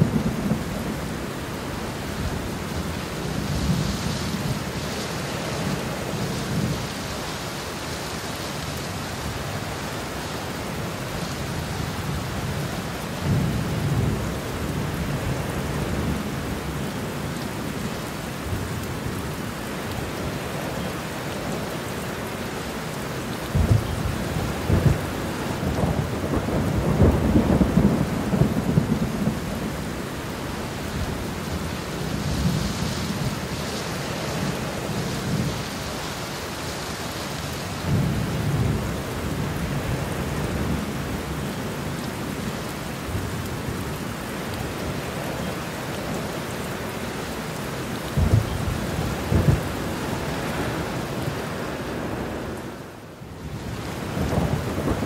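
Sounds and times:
steady rain: 0.0 - 55.0
thunder rumbling: 23.5 - 33.6, 48.1 - 52.4, 53.6 - 55.0.

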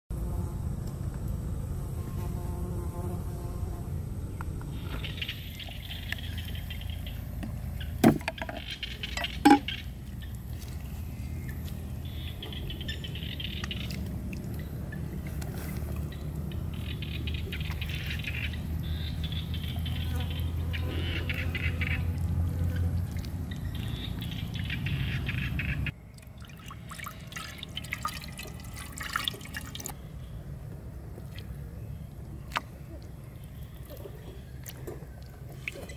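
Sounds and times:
steady low rumble: 0.2 - 8.0
wet squelching and rustling: 8.9 - 12.2, 13.6 - 18.3
water pouring into basin: 26.2 - 30.0.

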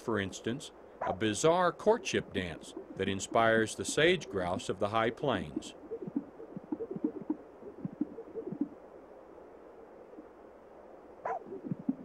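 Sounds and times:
grouse pops and coos: 2.5 - 8.8, 11.2 - 12.0.

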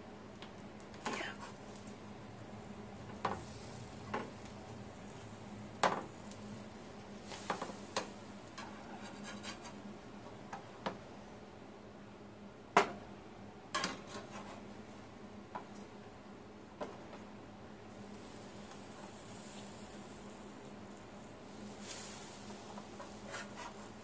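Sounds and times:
faint steady hum: 0.0 - 24.0
metal spatula scraping a griddle: 7.2 - 9.9, 13.9 - 14.6, 21.8 - 24.0.

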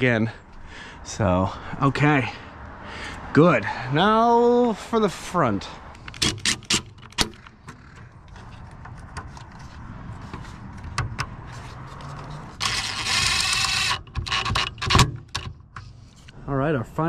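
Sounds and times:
handling noise: 5.9 - 16.4.

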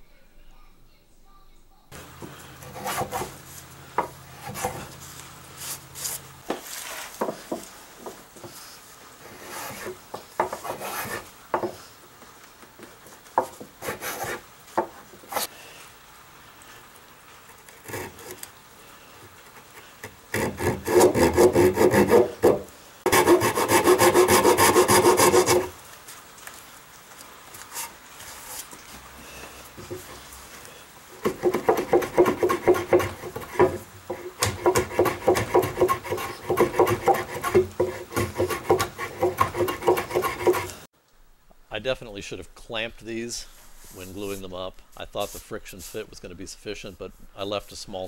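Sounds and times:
hand tool scraping wood: 2.0 - 11.9, 13.4 - 15.5, 17.5 - 18.5, 19.3 - 25.8, 27.5 - 40.9.

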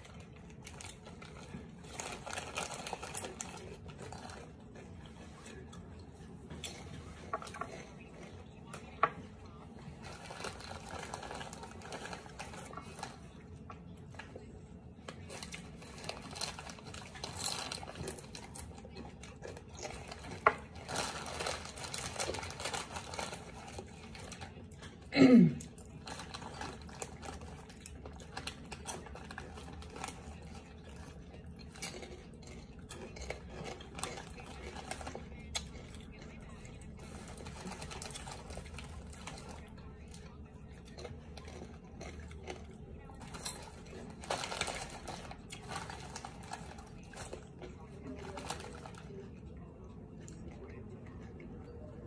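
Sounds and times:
plastic bags crinkling: 0.0 - 4.4, 9.8 - 13.4, 15.1 - 24.9, 26.0 - 42.6, 43.2 - 49.2
crunchy chewing: 0.0 - 52.0.

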